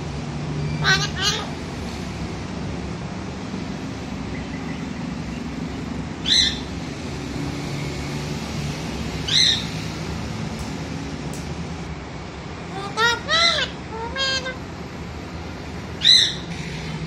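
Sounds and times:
parakeet high-pitched calls: 0.6s - 1.6s, 6.2s - 6.7s, 9.2s - 9.9s, 12.7s - 14.7s, 16.0s - 17.0s.

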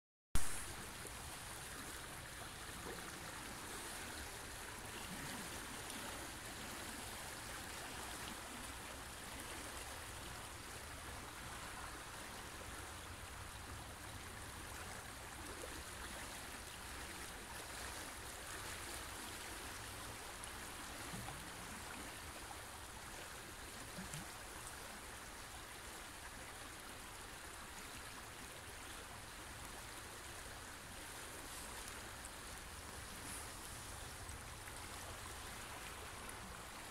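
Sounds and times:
fast river rushing: 26.8s - 36.9s.

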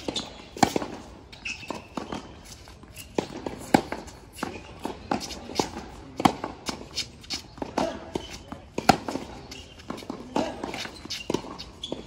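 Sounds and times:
players' footsteps: 0.0s - 12.0s
racquets striking tennis ball: 0.0s - 12.0s
ball bouncing on hard court: 7.6s - 12.0s.

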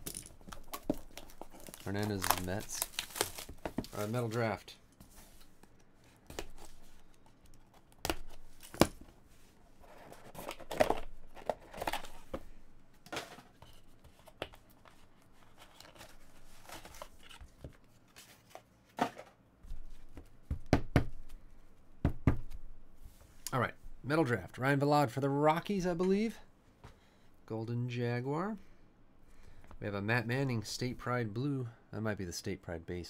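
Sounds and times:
cardboard tearing and crinkling: 0.7s - 4.4s.

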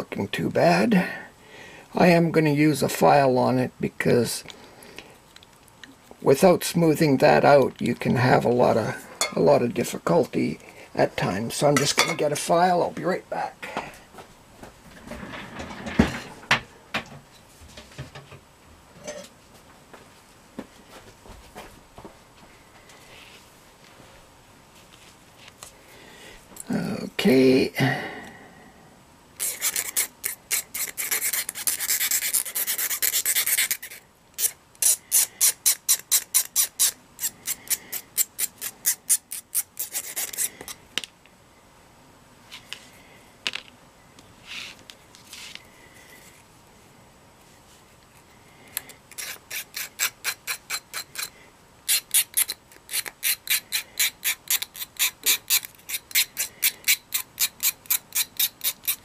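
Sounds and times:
metal file rasping: 29.4s - 40.5s, 49.1s - 51.3s, 51.9s - 59.0s.

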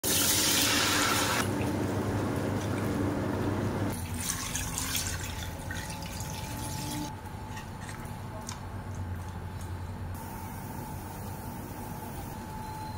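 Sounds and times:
water pouring into a pot: 3.9s - 7.1s.

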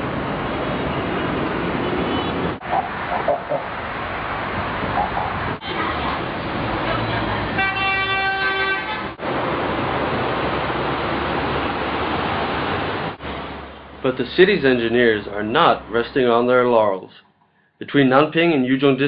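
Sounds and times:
road traffic of cars and trucks: 0.0s - 19.0s
vehicle horn: 1.8s - 2.6s, 7.0s - 9.2s.

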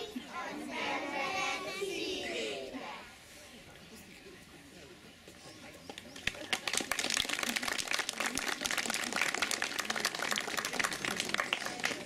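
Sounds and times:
crowd clapping: 5.9s - 12.0s.

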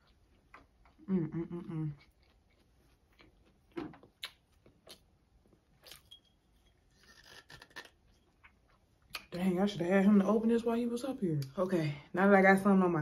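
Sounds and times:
chewing mouth noises: 0.0s - 5.2s.

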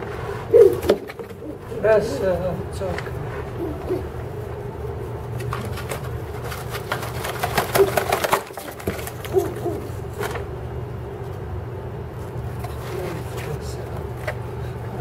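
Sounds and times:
rustling feathers and twigs: 0.0s - 15.0s
pigeon low hoot-like grunts: 0.3s - 2.2s, 3.2s - 4.4s, 7.8s - 10.2s.

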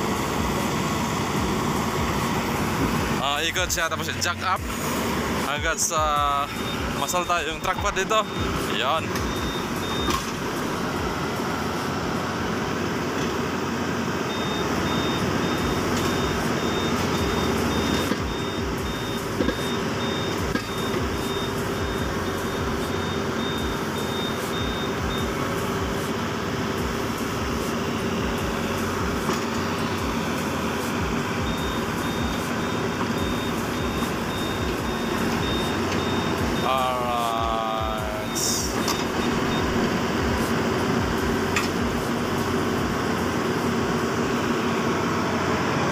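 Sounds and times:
diesel engine running under load: 0.0s - 45.9s
high warning beeper: 5.4s - 11.1s, 14.3s - 26.1s, 26.9s - 43.0s.

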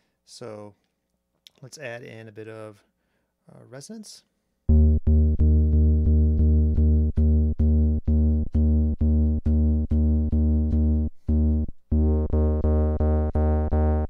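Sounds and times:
low square-wave synth bass: 4.7s - 14.0s.

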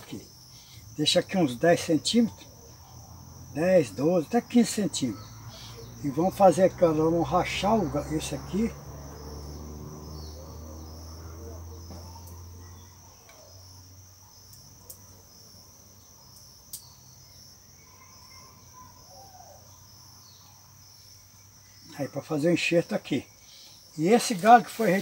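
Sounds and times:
insects chirring: 0.0s - 25.0s.

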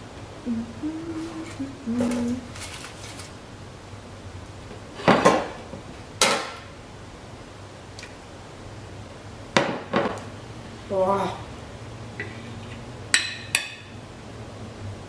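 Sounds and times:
aluminium foil crinkling: 1.4s - 3.4s.

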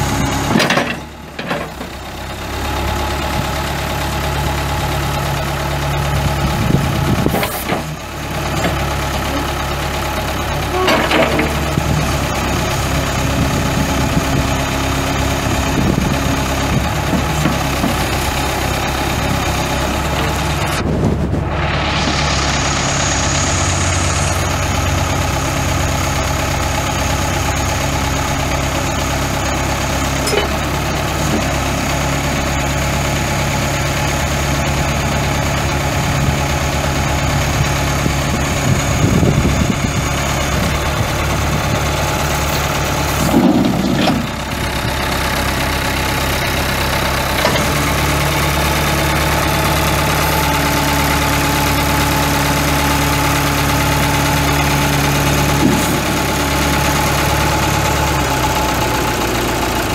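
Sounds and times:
diesel backhoe idling: 0.0s - 59.9s.

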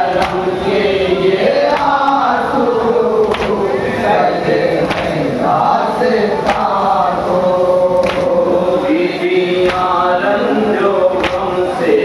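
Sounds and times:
group of voices chanting: 0.0s - 12.0s
man chanting through microphone: 0.0s - 12.0s
hands slapping chests: 0.2s - 0.5s, 1.7s - 2.2s, 3.2s - 3.6s, 4.9s - 5.2s, 6.4s - 6.8s, 8.0s - 8.4s, 9.6s - 10.0s, 11.2s - 11.5s.

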